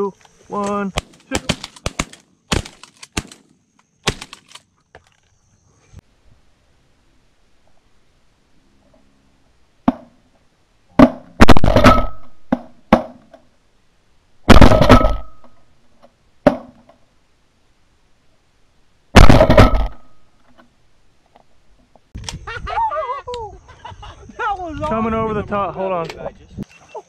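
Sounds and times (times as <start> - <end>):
shotgun shots: 1.0 - 4.6, 11.0 - 13.2, 14.5 - 15.5, 19.2 - 20.2.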